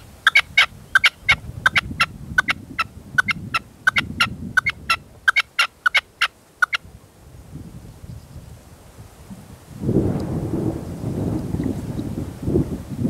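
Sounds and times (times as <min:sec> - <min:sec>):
wind rumble on microphone: 0:00.0 - 0:05.4, 0:06.7 - 0:13.0
partridge calling: 0:00.0 - 0:06.8.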